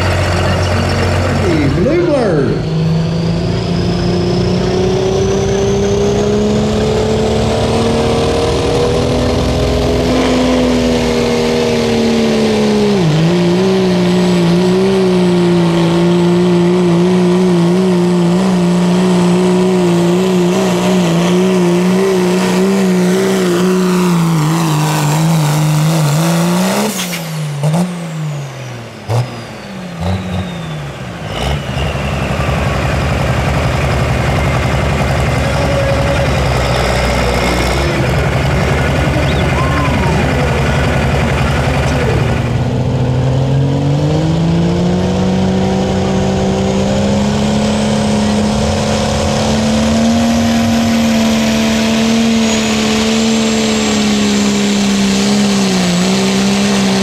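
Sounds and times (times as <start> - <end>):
diesel engine at full throttle: 0.0 - 57.0
turbo whistle: 39.1 - 40.9.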